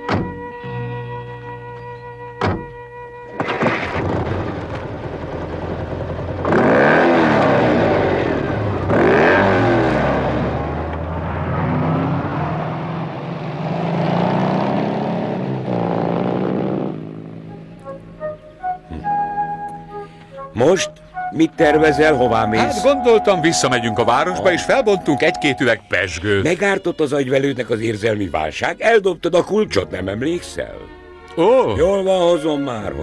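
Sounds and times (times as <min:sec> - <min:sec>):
car and motorcycle engines revving: 0:05.8 - 0:17.6.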